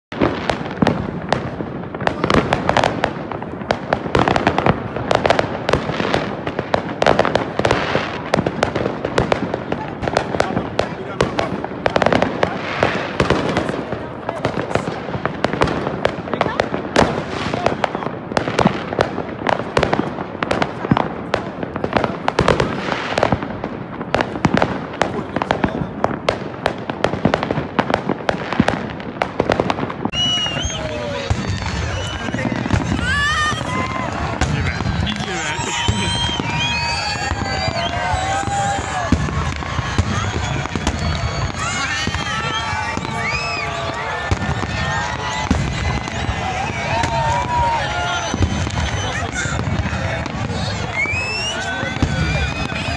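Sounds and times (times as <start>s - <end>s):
fireworks bangs and crackling: 0.1s - 52.9s
continuous noisy din: 30.0s - 52.9s.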